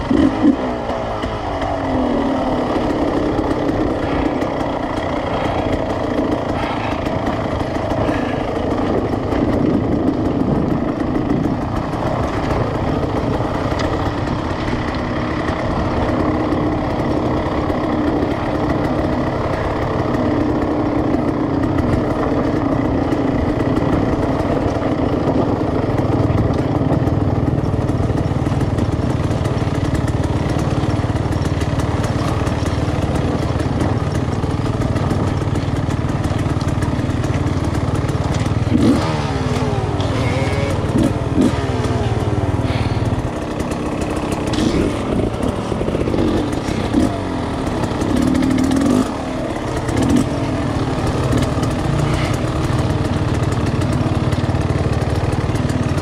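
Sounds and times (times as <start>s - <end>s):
dirt bike engine at low revs: 0.0s - 56.0s.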